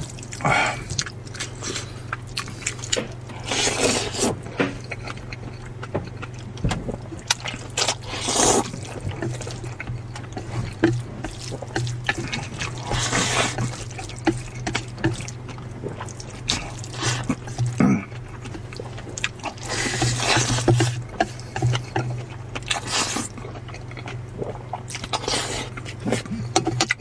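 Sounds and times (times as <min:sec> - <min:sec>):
person slurping noodles: 0:07.9 - 0:08.7, 0:11.5 - 0:13.7.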